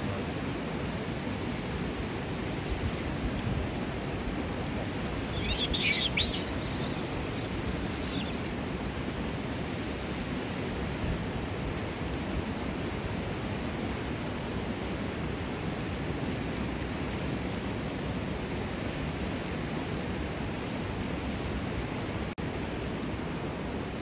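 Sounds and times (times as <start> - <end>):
flowing water rushing: 0.2 - 16.5
high bird chirps: 5.3 - 8.5.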